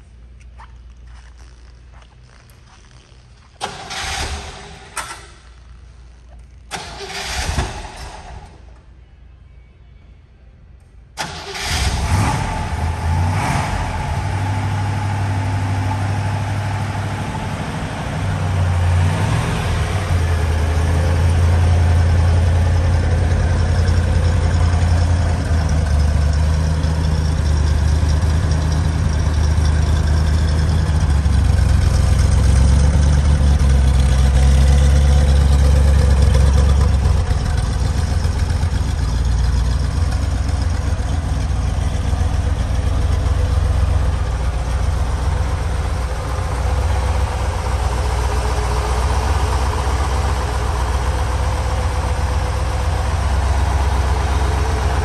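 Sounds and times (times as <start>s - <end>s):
car engine idling: 11.2s - 55.0s.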